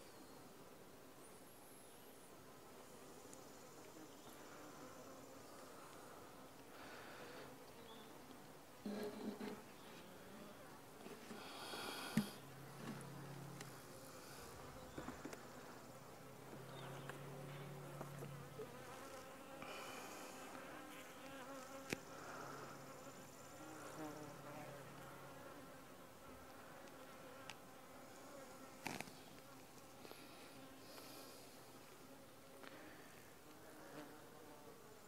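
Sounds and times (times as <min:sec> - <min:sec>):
honey bees buzzing: 0:03.0 - 0:35.0.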